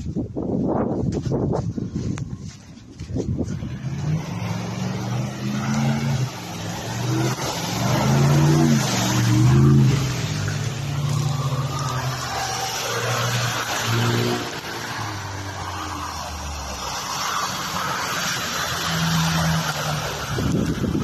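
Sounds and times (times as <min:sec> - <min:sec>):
tyres rushing and water splashing: 0:02.4 - 0:21.0
suv engine revving: 0:03.2 - 0:21.0.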